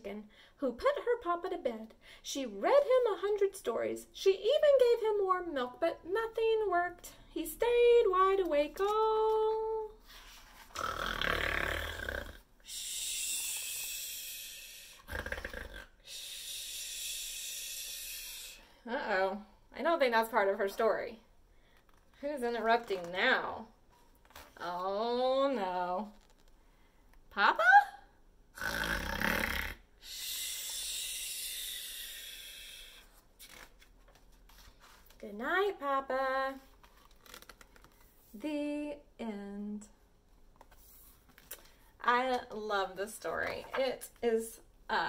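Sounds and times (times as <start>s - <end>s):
woman imitating snoring: 10.7s - 12.5s, 13.1s - 18.6s, 28.6s - 33.0s.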